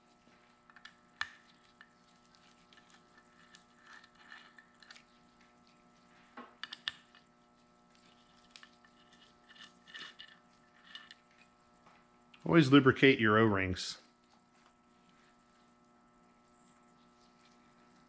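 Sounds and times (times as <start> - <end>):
soft ticks and rustles: 0.0 - 12.6, 14.0 - 18.0
low steady hum: 0.0 - 18.0.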